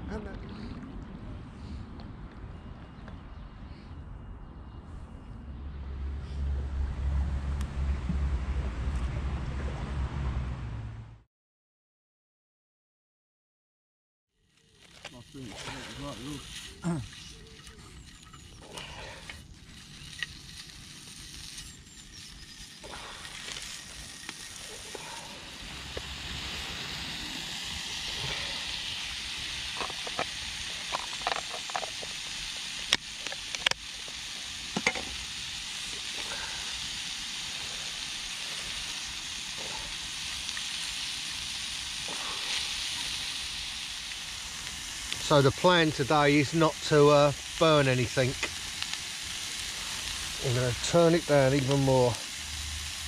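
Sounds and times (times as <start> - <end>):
bacon and mushrooms sizzling: 14.4 - 53.0.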